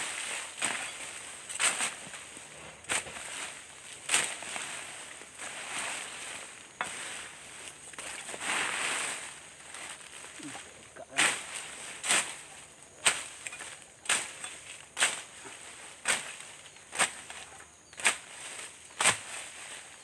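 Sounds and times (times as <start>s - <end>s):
brush rustling: 0.0s - 20.0s
hand tool chopping into soil: 0.4s - 5.2s, 16.0s - 19.4s.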